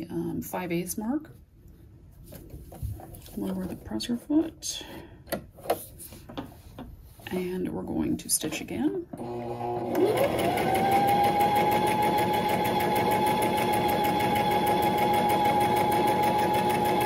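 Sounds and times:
sewing machine sewing: 0:09.2 - 0:17.0.

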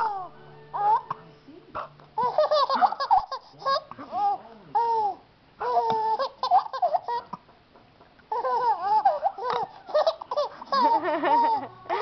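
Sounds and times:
baby girl giggling: 0:02.2 - 0:07.4, 0:08.3 - 0:12.0.

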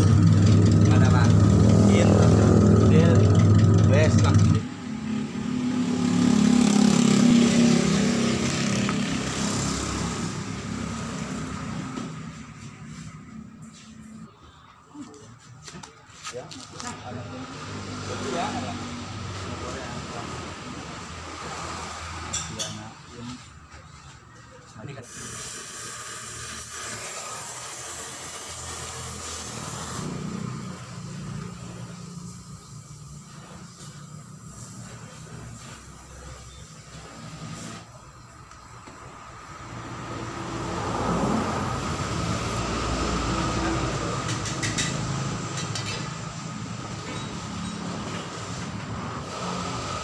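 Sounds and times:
motorcycle engine rumbling: 0:00.0 - 0:13.5
welding torch flame hissing: 0:25.0 - 0:43.5.

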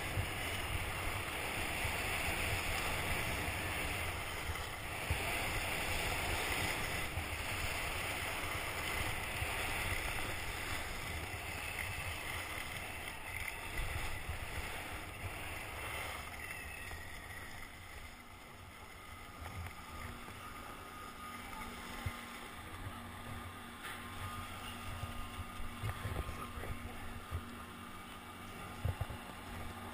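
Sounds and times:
skis hissing over packed snow: 0:00.0 - 0:19.0
wind on microphone: 0:00.0 - 0:29.9.

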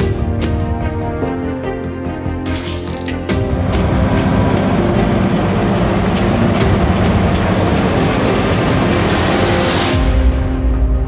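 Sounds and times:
combine harvester threshing: 0:03.4 - 0:09.9.

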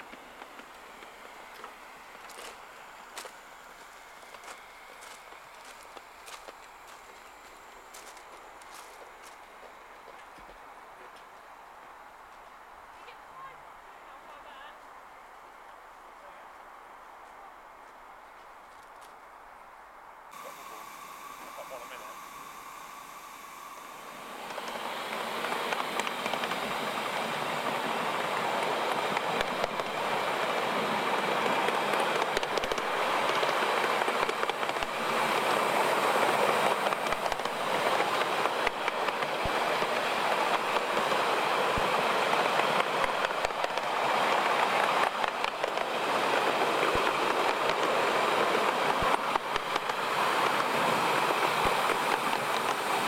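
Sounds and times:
wheels clicking over rail joints: 0:00.0 - 0:11.2, 0:24.4 - 0:53.0
miniature train running: 0:00.0 - 0:11.4, 0:20.3 - 0:53.0.

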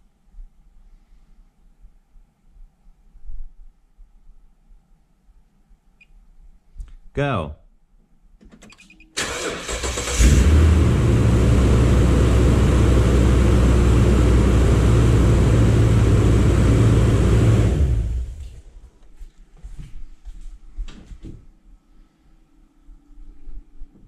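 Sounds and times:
starter motor cranking: 0:09.2 - 0:10.7
car engine idling: 0:09.2 - 0:18.7.

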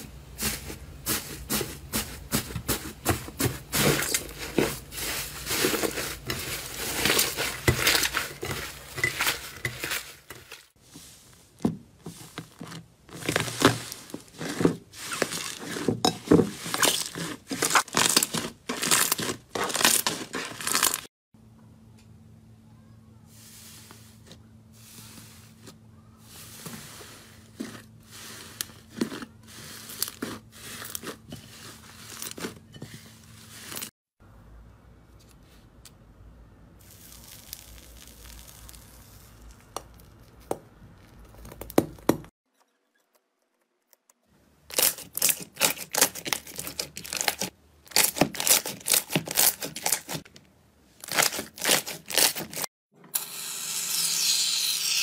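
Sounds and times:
potato masher pressing slime: 0:11.6 - 0:21.0, 0:25.6 - 0:33.9, 0:44.7 - 0:50.4, 0:51.1 - 0:52.6
slime crackling and popping: 0:16.7 - 0:21.0, 0:36.8 - 0:42.1.

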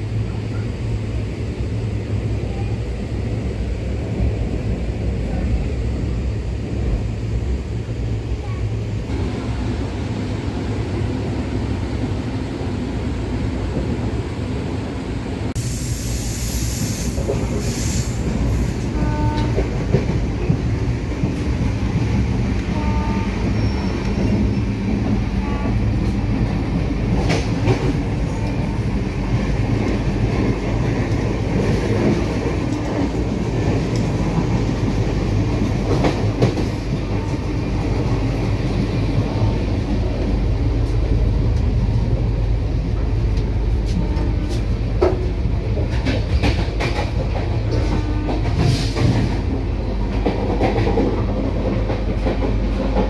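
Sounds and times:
train coach low rumble: 0:00.0 - 0:53.0.

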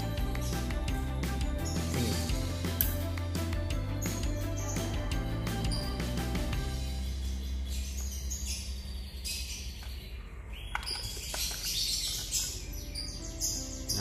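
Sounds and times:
high bird-like chirping: 0:00.0 - 0:02.6, 0:04.0 - 0:14.0
background music: 0:00.0 - 0:08.0, 0:12.3 - 0:14.0.

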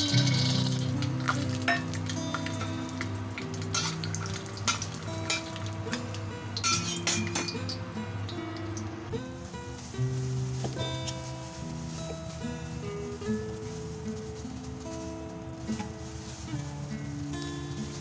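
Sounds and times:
metal spatula scraping a wok: 0:00.0 - 0:02.0
peanuts sizzling in hot oil: 0:00.0 - 0:08.9.

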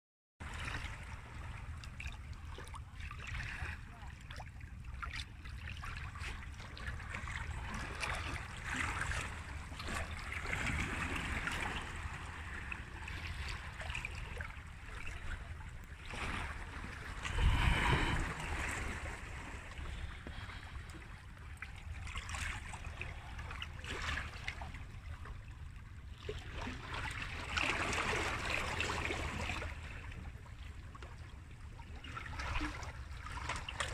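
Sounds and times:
waves lapping against rocks: 0:00.4 - 0:33.9
wind rumbling on microphone: 0:15.7 - 0:21.7.

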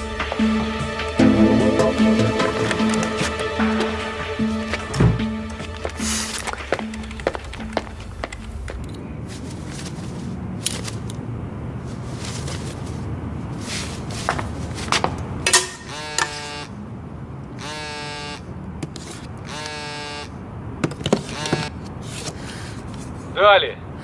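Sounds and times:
phone ringtone: 0:00.4 - 0:08.8
rustling strokes: 0:09.2 - 0:11.1, 0:11.8 - 0:15.1.

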